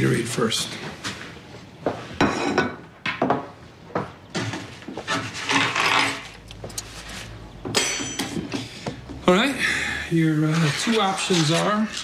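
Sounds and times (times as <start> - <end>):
dishes and cutlery clinking: 2.2 - 3.5, 7.6 - 8.7.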